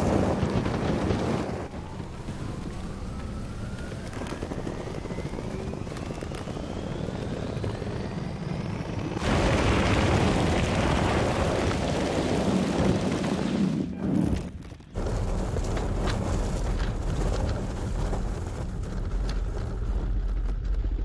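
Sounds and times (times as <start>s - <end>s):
spiked tyres churning through snow: 8.9s - 21.0s.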